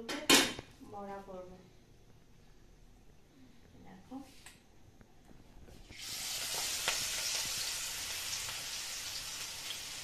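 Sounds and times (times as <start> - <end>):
small crackles: 4.4 - 8.8
batter sizzling in hot oil: 5.8 - 10.0.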